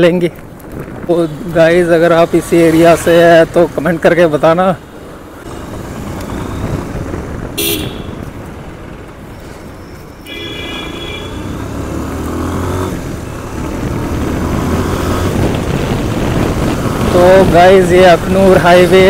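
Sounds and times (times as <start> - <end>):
motorcycle engine hum: 0.3 - 19.0
vehicle horn beeping: 7.6 - 8.2, 10.2 - 11.6.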